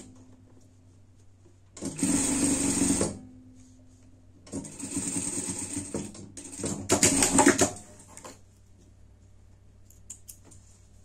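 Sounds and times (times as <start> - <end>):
sewing machine stitching: 1.8 - 3.2, 4.5 - 8.1.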